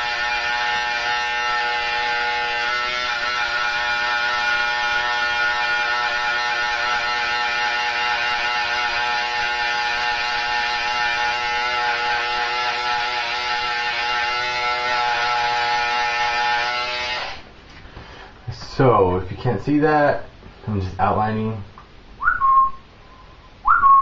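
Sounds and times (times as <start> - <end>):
electric hair trimmer buzzing: 6.0 - 17.4.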